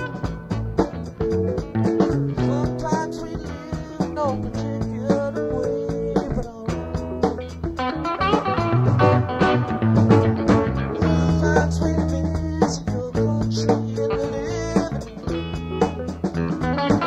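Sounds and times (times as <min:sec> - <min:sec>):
plucked guitar music with bass: 0:00.0 - 0:17.0.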